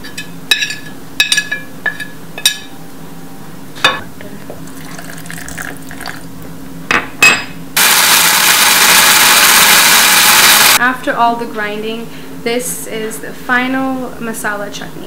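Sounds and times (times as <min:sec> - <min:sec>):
electric blender grinding: 0:07.8 - 0:10.8.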